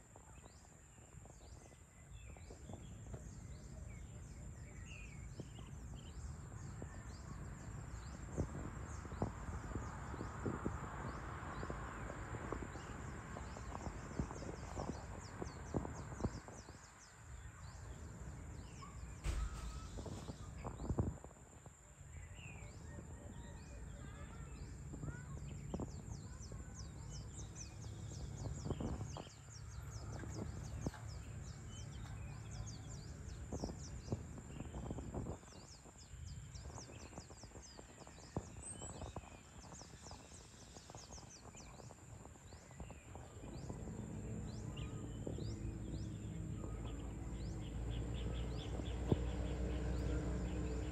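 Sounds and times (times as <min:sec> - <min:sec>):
birds chirping: 0:00.0 - 0:21.1, 0:21.7 - 0:50.9
knocks: 0:19.2 - 0:20.3.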